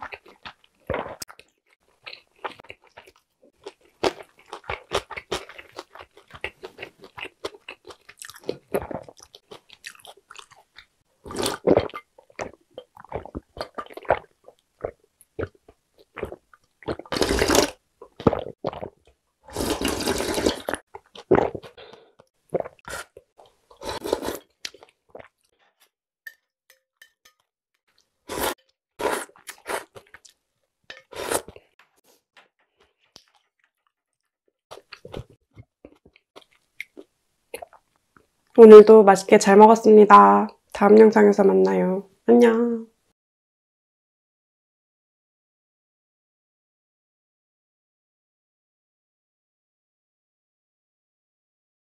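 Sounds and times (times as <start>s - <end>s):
chewing and swallowing: 0.0s - 25.5s, 34.7s - 38.3s
slurping broth from a bowl: 17.0s - 18.5s, 19.5s - 21.8s, 22.6s - 24.6s, 28.3s - 30.2s, 31.0s - 31.6s.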